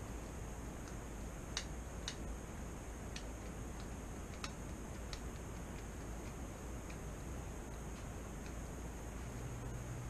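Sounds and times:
low hum and hiss: 0.0 - 10.0.

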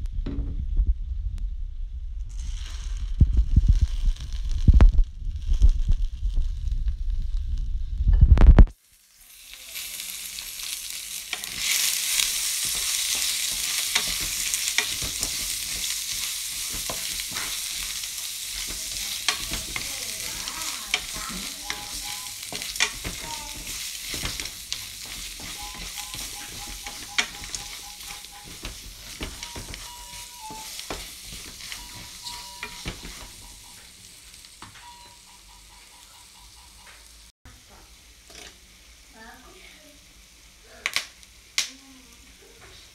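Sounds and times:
popcorn and chocolate sizzling in pan: 2.0 - 42.9
spatula stirring and scraping: 9.4 - 36.7
kernels clicking on pan: 9.8 - 37.2.

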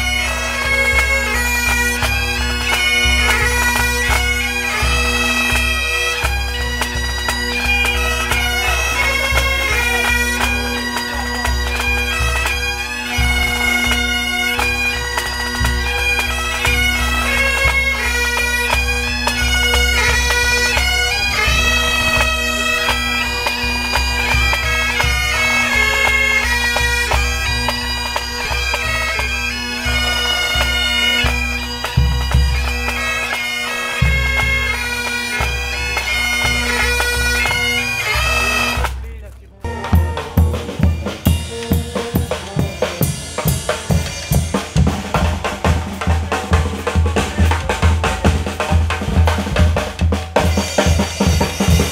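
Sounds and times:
bagpipes playing melody: 0.0 - 51.9
band drums pulsing: 38.8 - 51.9.

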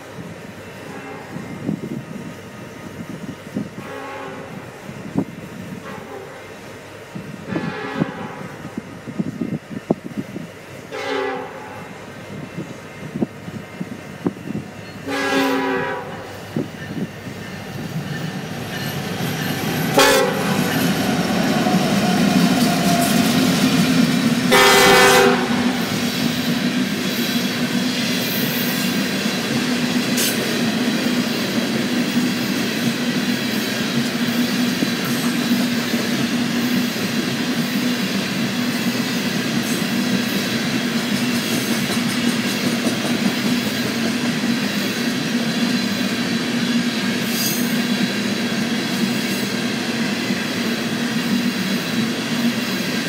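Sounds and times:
locomotive horn blasts: 3.8 - 4.6, 7.5 - 8.6, 10.9 - 11.9, 15.0 - 16.3, 20.0 - 20.6, 24.5 - 25.8
train wheels clattering on rails: 10.9 - 53.0.

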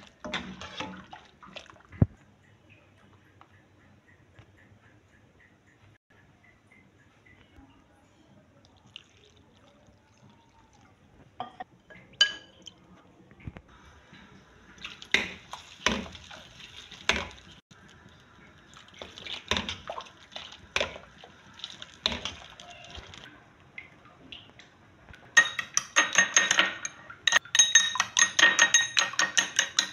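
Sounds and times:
liquid sloshing in a pan: 0.0 - 2.2, 14.1 - 24.5
spoon clinking on ceramic plate: 12.2 - 12.6, 25.4 - 29.9.

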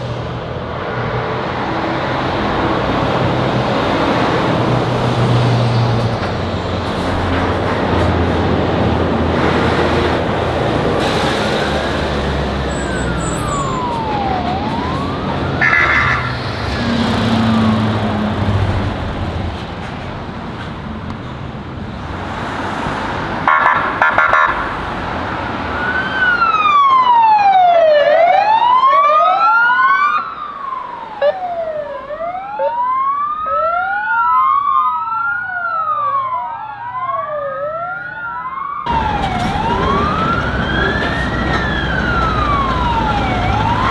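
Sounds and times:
two-tone wailing siren: 12.4 - 18.2, 23.5 - 24.7, 25.7 - 43.9
faint wailing siren: 12.4 - 18.4, 25.6 - 43.9.

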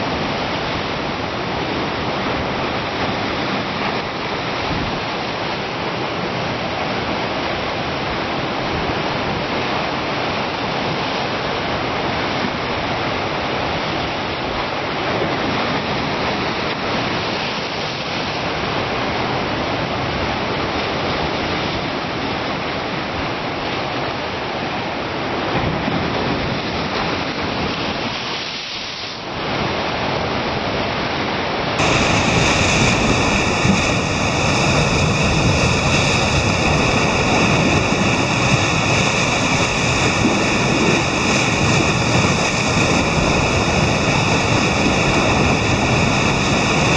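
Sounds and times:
surf breaking over rocks: 31.7 - 46.9.

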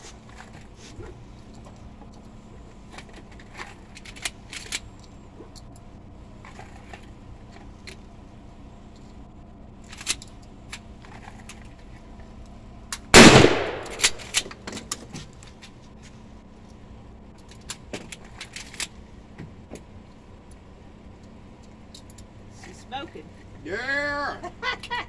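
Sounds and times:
sharp clicks and knocks: 12.9 - 15.8
shotgun blast with echo: 13.2 - 14.4.

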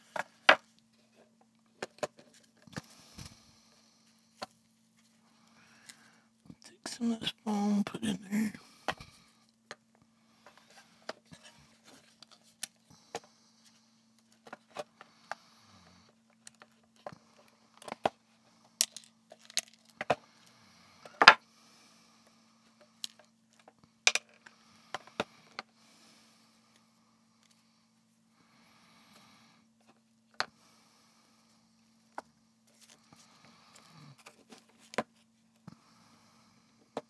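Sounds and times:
plastic parts clicking and knocking: 18.8 - 20.2, 23.0 - 24.4.

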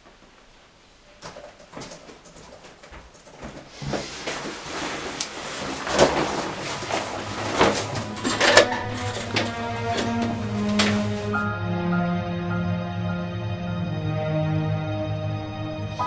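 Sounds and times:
coat rustling: 0.0 - 11.6.

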